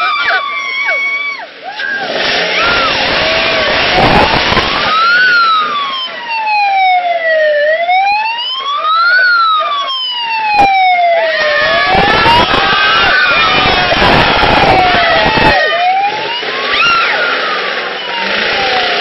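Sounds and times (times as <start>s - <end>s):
crowd shouting and whooping: 0.0s - 6.3s, 8.0s - 19.0s
vehicle siren wailing: 0.0s - 19.0s.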